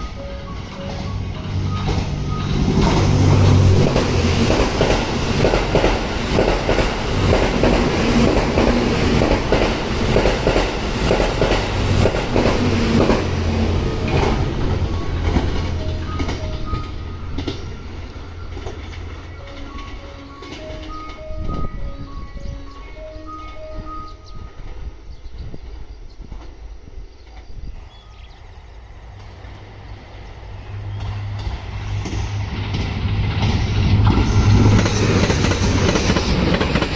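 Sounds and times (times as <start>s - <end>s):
diesel train rumbling past: 0.0s - 36.9s
wheels clicking over rails: 0.5s - 21.6s, 29.1s - 36.9s.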